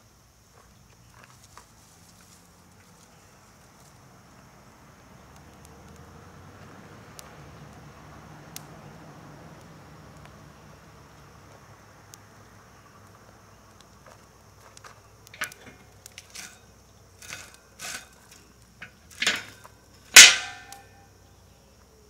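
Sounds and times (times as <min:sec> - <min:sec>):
insects chirring: 0:00.0 - 0:22.0
handling knocks and clicks: 0:15.3 - 0:16.5, 0:18.8 - 0:20.8
ringing metal clang: 0:19.1 - 0:21.0.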